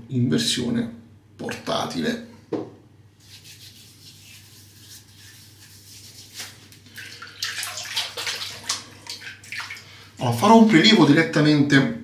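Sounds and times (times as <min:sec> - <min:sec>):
water splashing in sink: 0:06.4 - 0:10.0.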